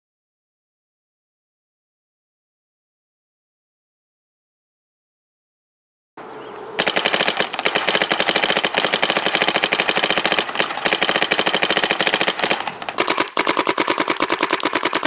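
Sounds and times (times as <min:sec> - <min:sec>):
paintball marker firing: 0:06.8 - 0:15.0.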